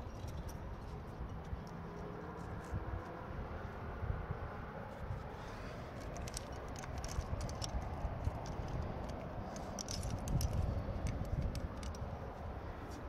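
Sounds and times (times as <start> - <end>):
climbing gear clinking: 0.0 - 2.7, 5.7 - 13.0
low steady rumble: 0.0 - 13.0.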